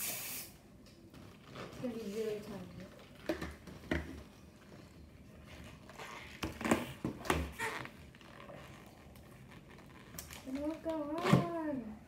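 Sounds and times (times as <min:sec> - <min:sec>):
balloons squeaking when twisted: 0:05.5 - 0:10.8.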